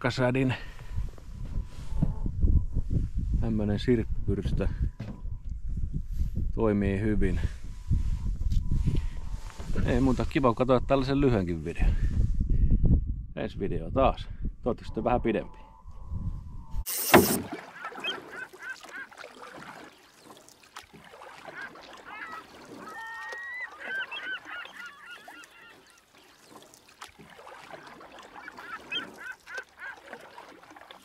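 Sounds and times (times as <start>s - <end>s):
flock of birds honking: 21.2s - 26.4s, 27.8s - 30.1s.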